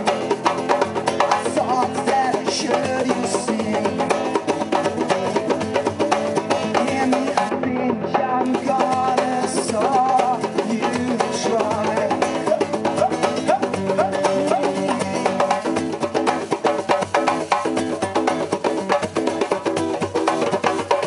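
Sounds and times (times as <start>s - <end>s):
percussion beat: 0.0s - 21.0s
strummed acoustic guitar: 0.0s - 21.0s
man singing into microphone: 1.4s - 4.2s, 6.6s - 15.8s.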